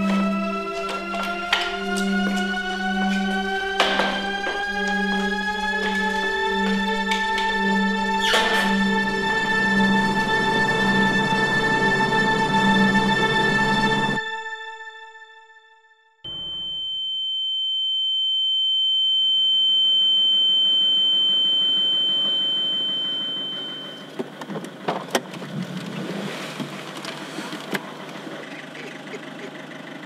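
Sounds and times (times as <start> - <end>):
high ringing tone: 16.3 - 24.5
car engine idling: 22.0 - 30.0.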